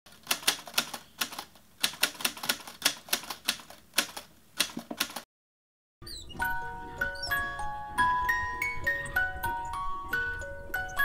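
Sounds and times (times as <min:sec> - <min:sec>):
bell-like music tune: 0:06.4 - 0:11.0.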